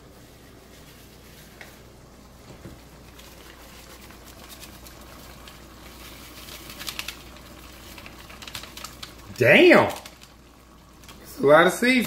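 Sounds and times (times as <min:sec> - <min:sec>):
paper packets crinkling: 0:03.0 - 0:11.2.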